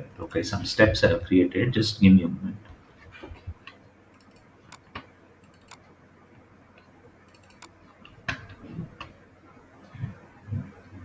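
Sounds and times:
computer mouse clicks: 0:03.6 - 0:05.8, 0:06.8 - 0:08.2
soft low thumps: 0:10.0 - 0:11.0.

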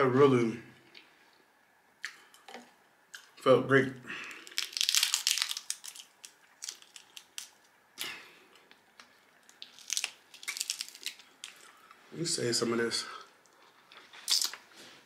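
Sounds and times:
crab shells cracking: 0:04.3 - 0:08.1, 0:09.4 - 0:11.8.

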